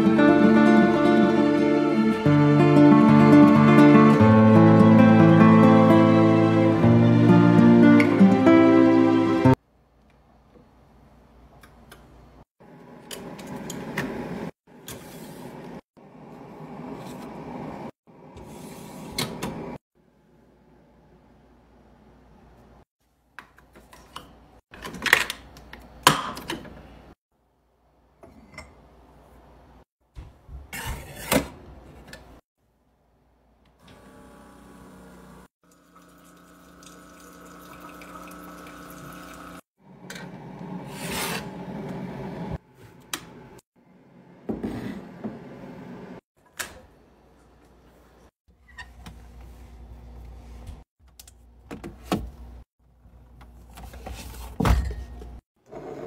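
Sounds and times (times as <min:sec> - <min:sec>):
coffee maker humming: 0:33.8 - 0:42.6, 0:55.6 - 0:56.0
coffee maker rushing hiss: 0:33.9 - 0:35.5.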